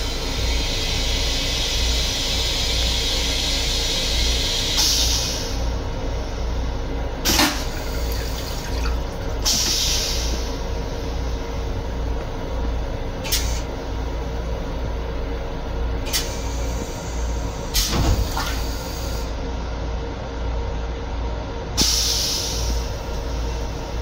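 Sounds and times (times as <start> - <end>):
moving train rumble: 0.0 - 24.0
toilet flush hissing: 7.2 - 11.8
water rinsing around bowl: 7.4 - 9.7.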